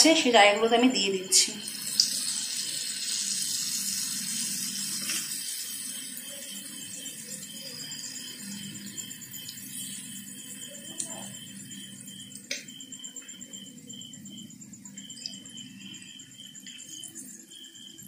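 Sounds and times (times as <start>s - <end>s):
fritters sizzling in deep oil: 1.3s - 12.6s.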